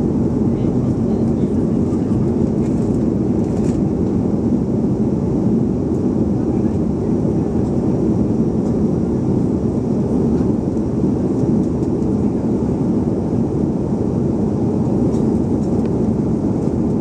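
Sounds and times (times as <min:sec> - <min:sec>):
jet engines humming: 0:00.0 - 0:17.0.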